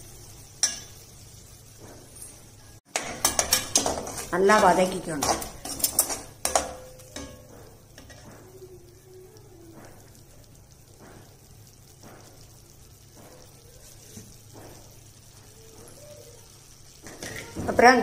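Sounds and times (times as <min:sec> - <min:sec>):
food sizzling in pan: 0:00.0 - 0:18.0
metal spoon clanking on pan: 0:00.5 - 0:01.1, 0:02.0 - 0:08.4, 0:17.0 - 0:17.8.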